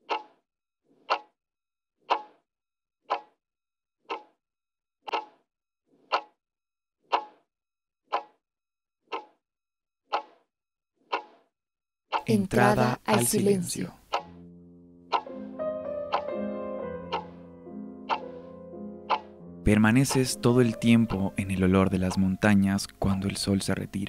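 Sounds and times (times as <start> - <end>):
clock ticking: 0.0 - 0.4, 1.1 - 1.4, 2.0 - 2.4, 3.0 - 3.4, 4.1 - 4.4, 5.1 - 5.4, 6.1 - 6.4, 7.1 - 7.4, 8.1 - 8.4, 9.1 - 9.4, 10.1 - 10.4, 11.1 - 11.4, 12.1 - 15.5, 16.1 - 16.4, 17.1 - 24.0.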